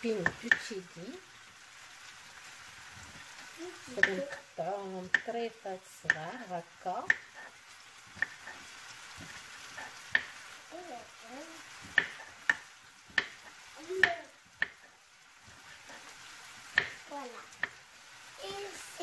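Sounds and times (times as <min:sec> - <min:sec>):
chicken sizzling in a pan: 0:00.0 - 0:19.0
knife chopping on wooden board: 0:07.0 - 0:07.5, 0:08.1 - 0:10.4, 0:11.8 - 0:14.8, 0:16.7 - 0:17.0.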